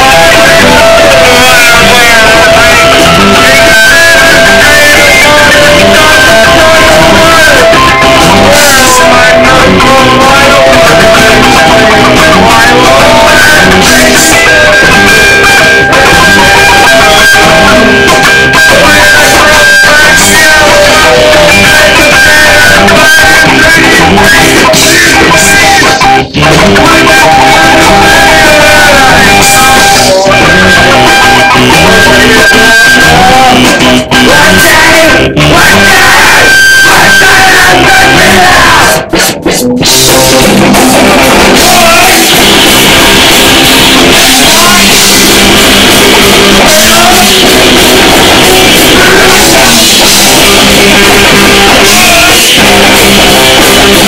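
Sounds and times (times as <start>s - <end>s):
drums: 0.0s - 54.0s
electric guitar: 0.0s - 54.0s
live rock band playing: 0.0s - 54.0s.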